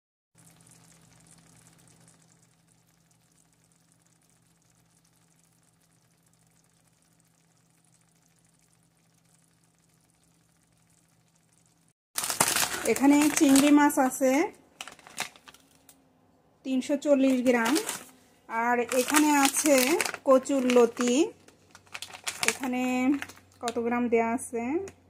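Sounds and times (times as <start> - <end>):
faint sizzling in a frying pan: 0.4 - 11.9.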